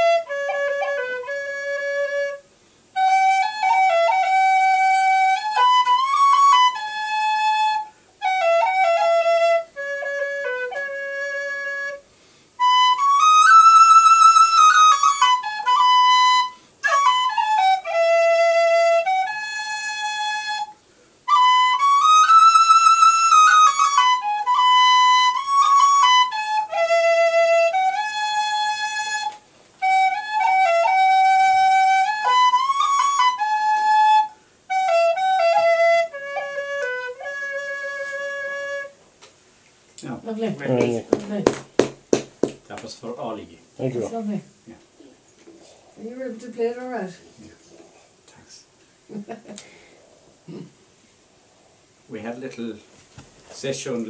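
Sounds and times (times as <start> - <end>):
slow air on small wind instrument: 31.3 - 39.0.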